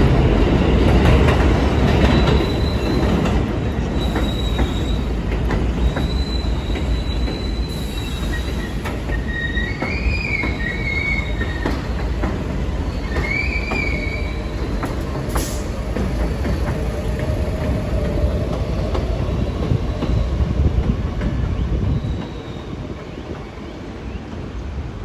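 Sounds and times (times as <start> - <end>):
train wheels rumbling on rails: 0.0 - 25.0
high wheel squeal: 1.8 - 3.2, 5.8 - 11.9.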